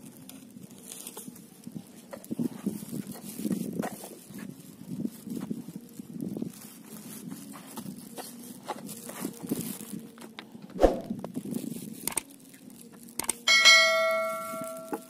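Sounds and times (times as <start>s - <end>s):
bell chime: 13.5s - 15.0s.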